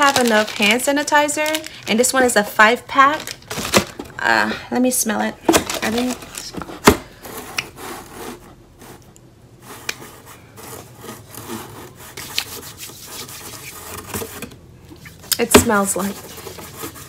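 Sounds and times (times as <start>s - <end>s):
hands rubbing together: 12.1s - 13.8s.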